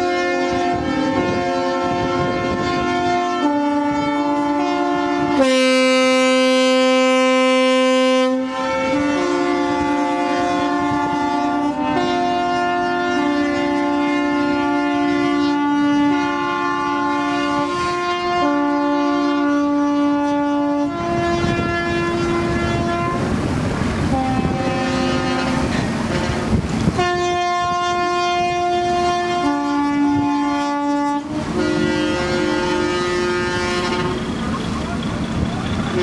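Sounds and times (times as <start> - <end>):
ships' horns blaring: 0.0 - 36.0
broad rushing noise: 20.9 - 30.3, 31.1 - 36.0.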